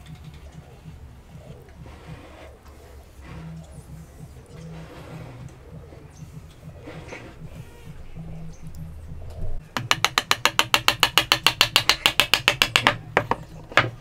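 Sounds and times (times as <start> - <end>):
small hammer tapping on wood: 9.8 - 14.0.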